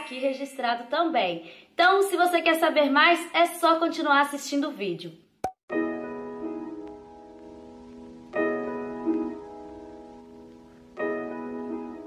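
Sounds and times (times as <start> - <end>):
soft piano chords: 5.7 - 12.0.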